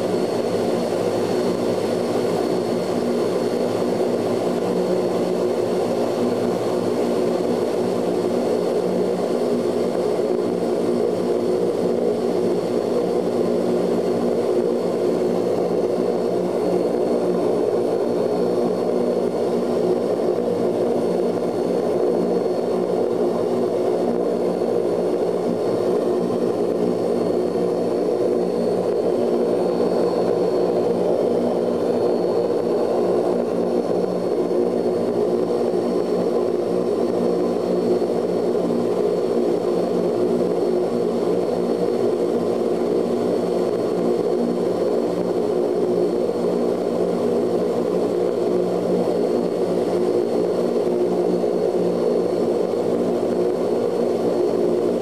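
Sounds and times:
turboprop engines droning: 0.0 - 55.0.

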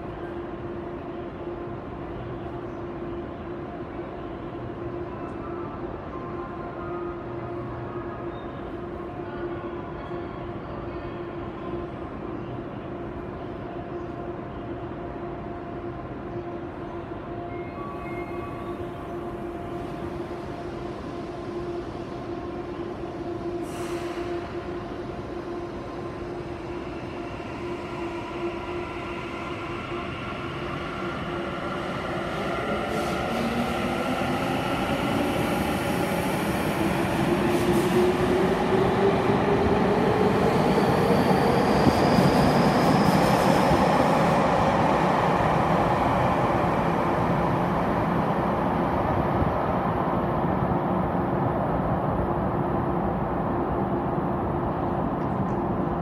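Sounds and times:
train humming: 13.8 - 56.0.

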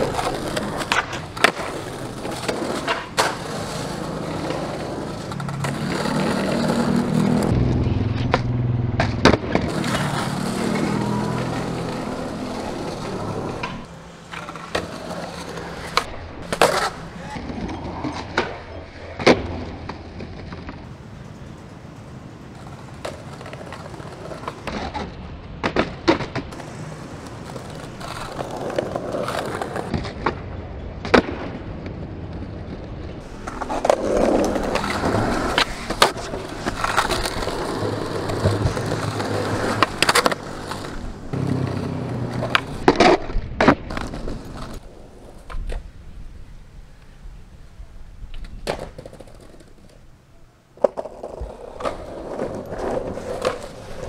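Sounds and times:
skateboard deck cracks: 0.0 - 7.5, 8.2 - 20.9, 22.5 - 45.9, 48.3 - 50.1, 50.8 - 54.0
skateboard wheels rolling: 0.0 - 54.0.

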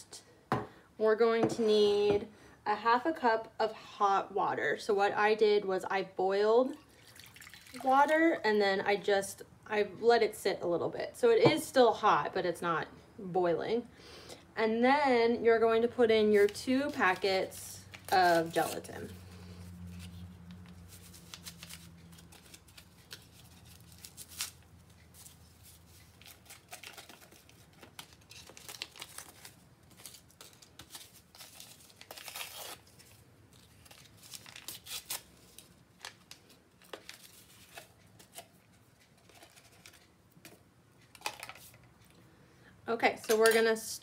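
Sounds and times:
paper packets tearing and crinkling: 16.4 - 38.5.

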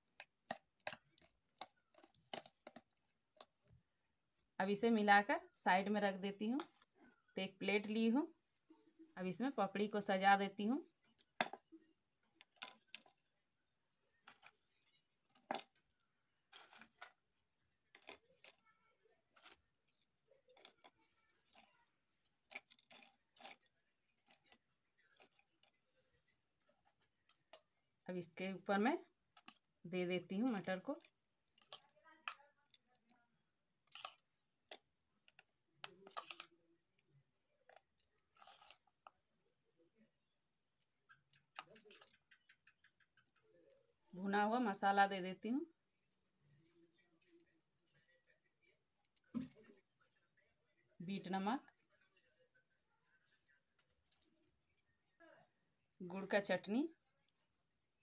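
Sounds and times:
metal spoon scraping steel bowl: 33.8 - 34.2, 36.0 - 36.6, 37.9 - 38.9.

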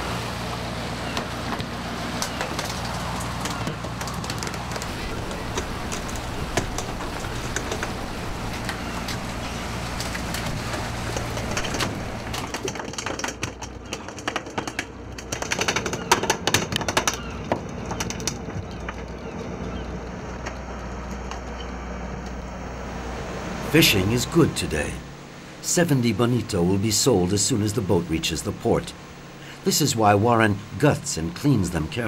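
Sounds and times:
boat engine humming: 0.0 - 32.0
rushing water: 0.0 - 32.0
wind: 0.0 - 32.0
fish tails slapping wooden deck: 1.1 - 21.8.

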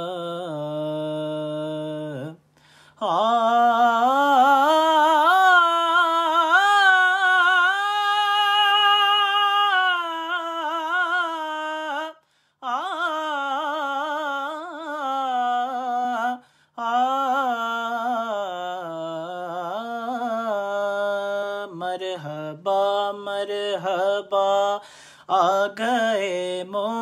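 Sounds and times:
man singing wordless notes: 0.0 - 27.0.

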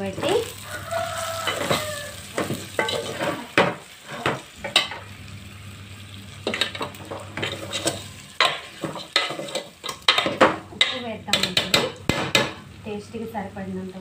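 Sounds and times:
food sizzling: 0.0 - 14.0
ladle scraping a metal pot: 0.2 - 5.0, 6.4 - 10.4.

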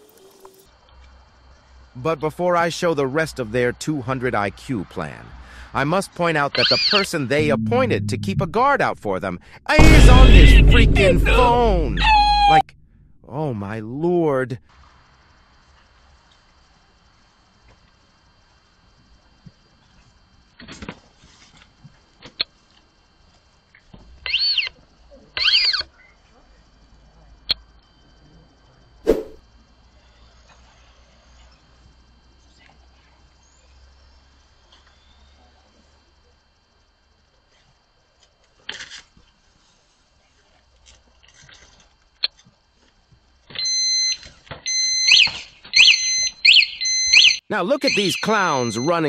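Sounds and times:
anti-theft alarm pulsing tone: 6.5 - 13.0, 43.6 - 49.0.

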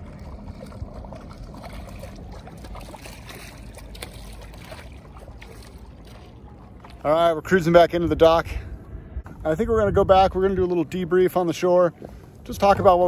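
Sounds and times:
kayak paddle splashing: 0.0 - 7.3
low steady rumble: 0.0 - 13.0.

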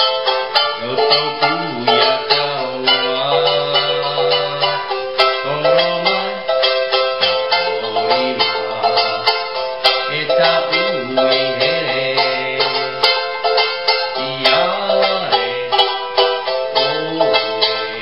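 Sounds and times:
ukulele strumming: 0.0 - 18.0
man singing in a low voice: 0.8 - 6.6, 7.5 - 9.4, 10.0 - 13.4, 14.1 - 16.0, 16.7 - 18.0.

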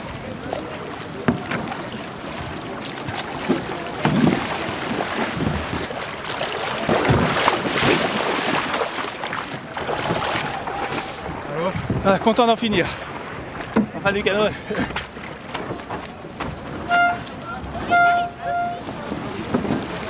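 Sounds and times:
water splashing in shallows: 0.0 - 14.0.

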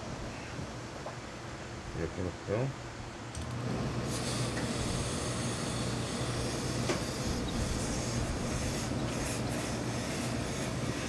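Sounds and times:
steady low hum: 0.0 - 11.0
steam hissing from iron: 4.0 - 11.0.

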